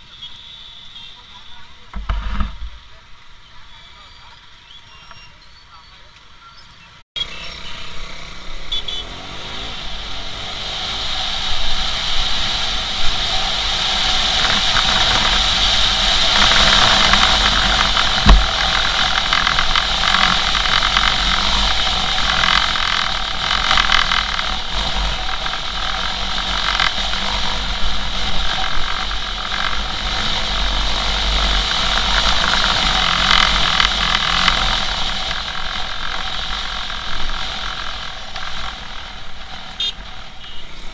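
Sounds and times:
wind and road noise: 0.0s - 40.9s
motorcycle engine: 7.2s - 40.9s
sharp knock: 18.2s - 18.6s.

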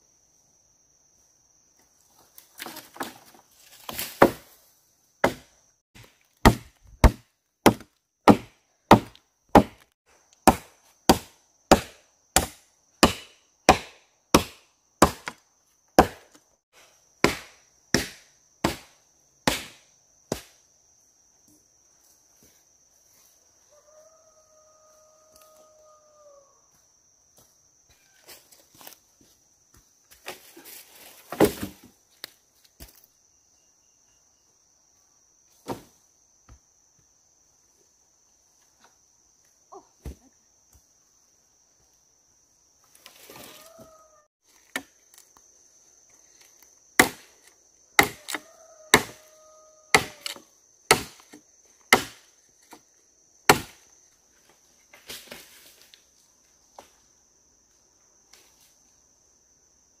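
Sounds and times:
sharp chopping strikes: 5.2s - 15.4s, 16.0s - 16.3s, 17.2s - 20.6s, 47.0s - 47.3s, 48.0s - 49.2s, 49.9s - 52.2s, 53.5s - 53.8s.

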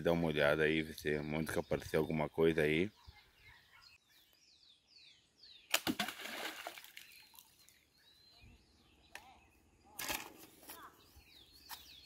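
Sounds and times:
birds chirping faintly: 0.0s - 12.0s
splash into water: 5.7s - 7.4s.

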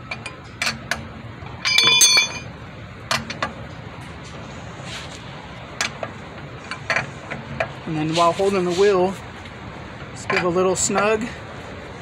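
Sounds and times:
lug wrench clanking on lug nuts: 0.1s - 2.5s
loud ringing metal clank: 1.6s - 2.5s.

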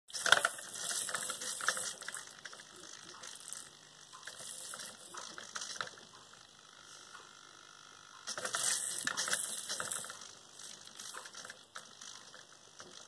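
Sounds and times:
plastic ball rattling in wooden channel: 0.1s - 3.7s, 8.3s - 13.0s
servo whirring: 0.1s - 13.0s.

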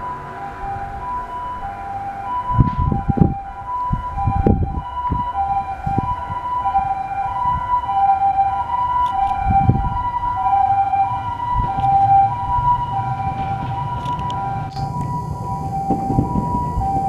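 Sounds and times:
electric train rumble: 0.0s - 7.7s, 8.6s - 17.0s
heavy knocks of train: 2.6s - 3.3s, 11.3s - 17.0s.

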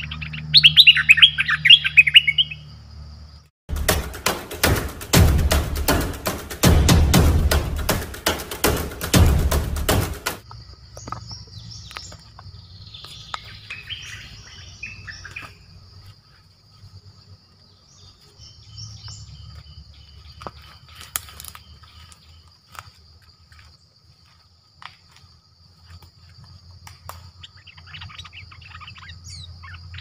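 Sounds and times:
bird chirping: 0.0s - 3.5s, 10.5s - 16.4s, 17.0s - 22.6s, 27.2s - 30.0s
high insect drone: 0.0s - 30.0s.

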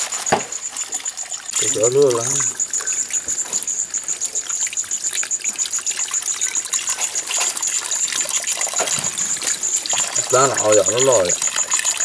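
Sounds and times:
hands washing in water: 0.0s - 12.0s
water pouring from spout: 0.0s - 12.0s
high-pitched pulsing trill: 0.6s - 12.0s.

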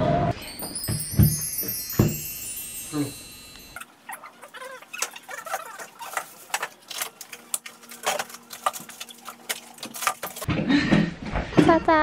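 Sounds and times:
groceries clattering into fridge: 5.0s - 10.6s.

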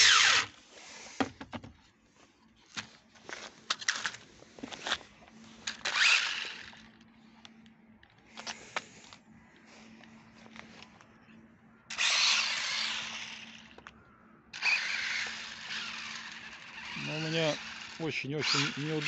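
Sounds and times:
toy car electric motor whine: 0.0s - 0.6s, 5.6s - 7.0s, 11.9s - 13.8s, 14.5s - 19.0s
tyres on asphalt: 0.0s - 19.0s.

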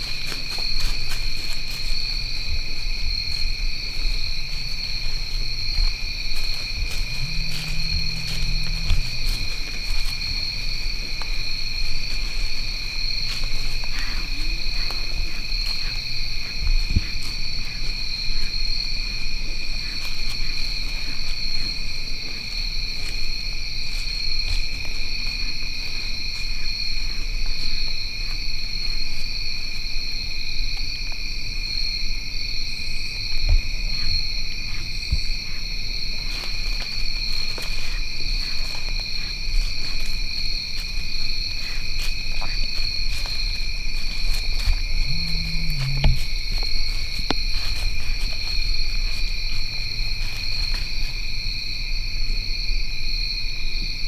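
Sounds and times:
crickets chirping: 0.0s - 54.0s
low rumble: 6.6s - 10.7s, 44.8s - 46.6s.

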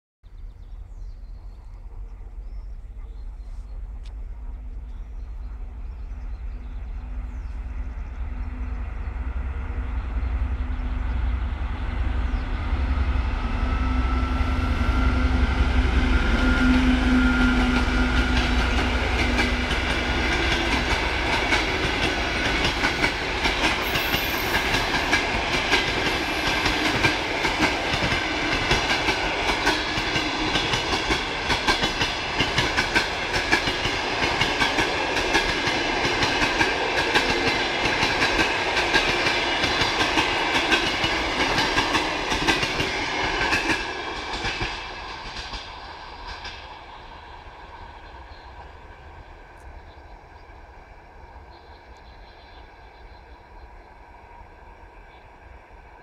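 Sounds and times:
diesel locomotive engine drone: 0.4s - 56.0s
train wheels clattering on rail joints: 17.4s - 46.8s.

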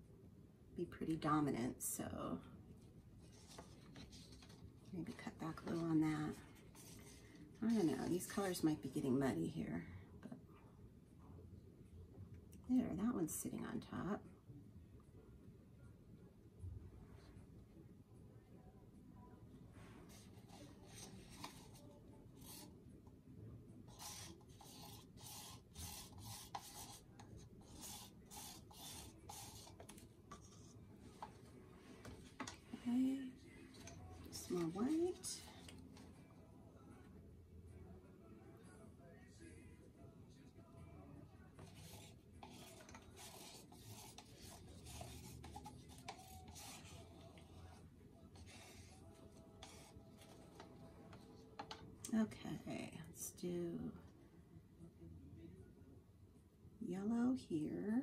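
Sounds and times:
rubbing on plastic cup: 3.2s - 8.0s, 20.1s - 22.7s, 23.9s - 32.6s, 33.7s - 36.0s, 41.6s - 51.8s.

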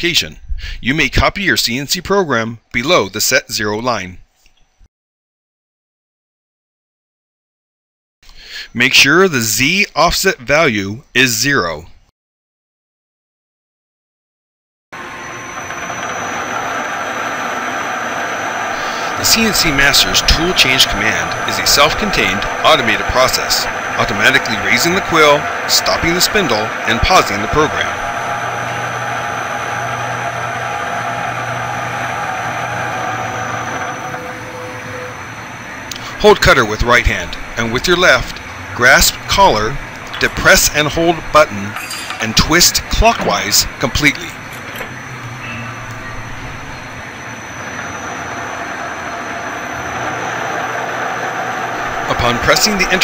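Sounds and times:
milling machine spindle hum and whine: 15.0s - 53.0s.

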